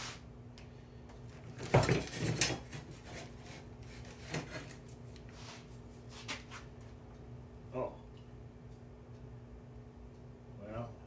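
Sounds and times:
wood and tools knocking on workbench: 1.6 - 2.9.

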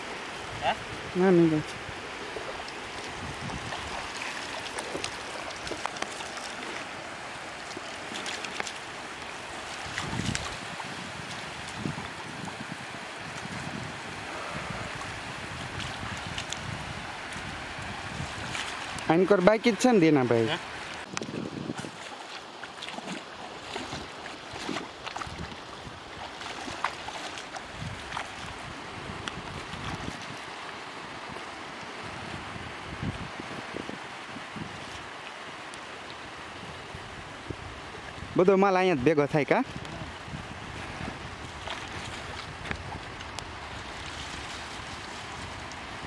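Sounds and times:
shallow water sloshing: 1.7 - 19.1, 20.6 - 31.5
small sharp splashes: 2.2 - 12.6, 15.5 - 19.1, 20.7 - 30.8.

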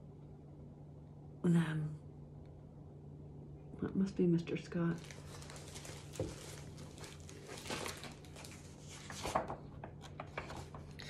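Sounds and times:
low steady hum: 0.0 - 11.0
book pages rustling: 5.0 - 11.0.

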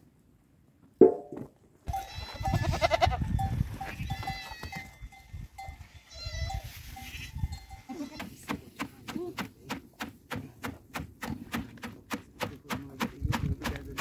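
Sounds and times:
goats bleating: 1.9 - 3.3, 4.0 - 4.9, 6.0 - 8.4
small bell ringing: 3.3 - 8.0.

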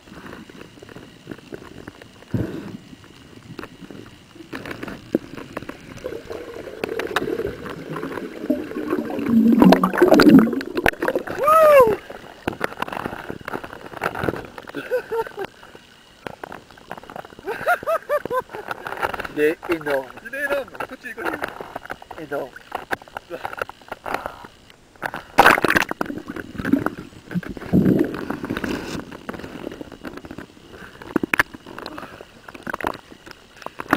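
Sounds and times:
water splashing and sloshing: 4.5 - 14.7
water bubbling underwater: 5.8 - 12.2, 25.4 - 28.2.

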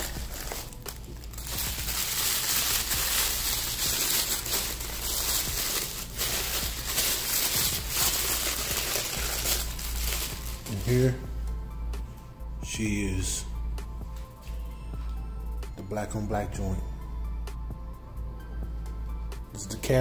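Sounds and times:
tissue paper crinkling: 0.0 - 11.1.

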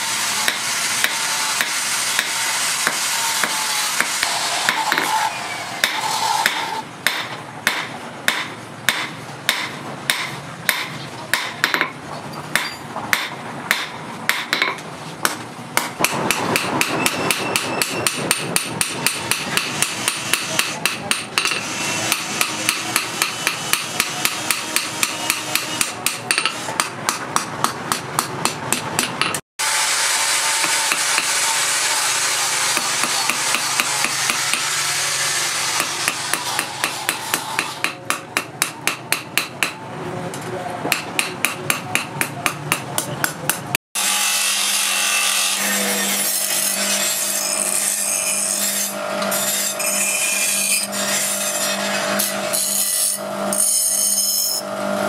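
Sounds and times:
hammer striking metal blade: 0.4 - 5.2, 5.8 - 29.4, 30.6 - 31.4, 32.7 - 34.7, 35.7 - 39.8, 40.9 - 43.7.

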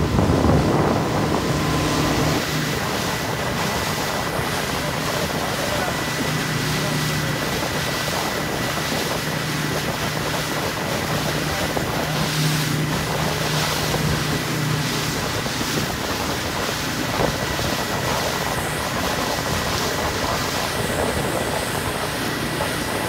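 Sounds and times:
motorboat engine humming: 0.0 - 23.0
water rushing along hull: 0.0 - 23.0
wind on microphone: 0.0 - 23.0.

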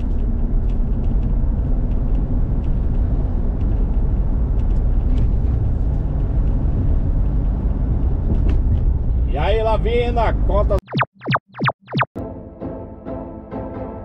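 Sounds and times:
engine and tyre rumble: 0.0 - 10.8.

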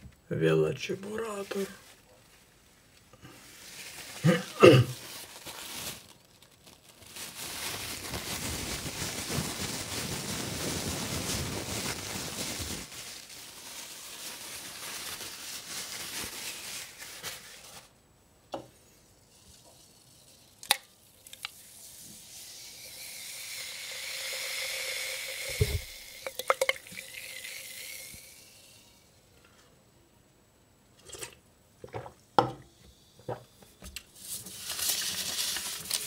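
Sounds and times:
crackling hiss: 0.0 - 29.7, 32.7 - 36.0
paper banknotes crinkling: 3.6 - 17.9, 34.2 - 36.0.

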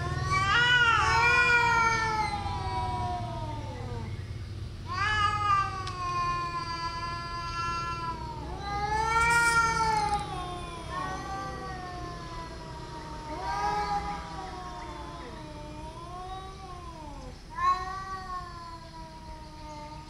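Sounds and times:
cats yowling: 0.0 - 4.2, 4.8 - 20.0.

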